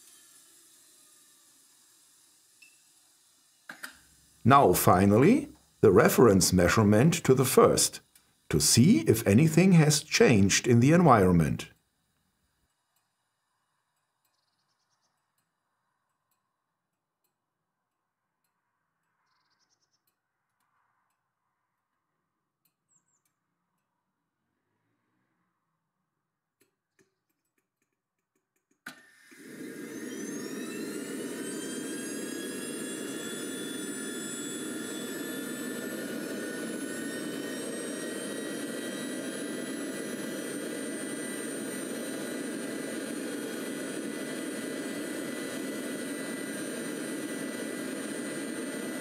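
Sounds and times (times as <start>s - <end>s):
model jet turbine engine: 0.0s - 11.8s, 28.6s - 49.0s.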